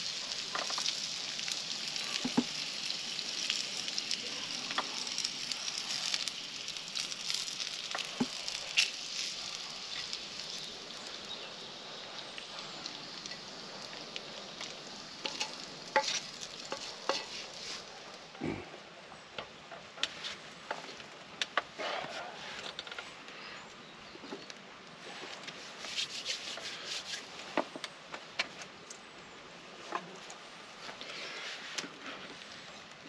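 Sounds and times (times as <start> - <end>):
bacon sizzling: 0.0 - 18.3.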